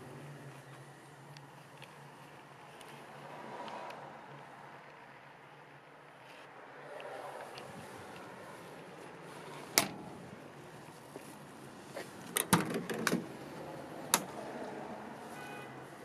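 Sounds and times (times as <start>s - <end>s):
car door latch clicking open: 12.3s - 13.3s.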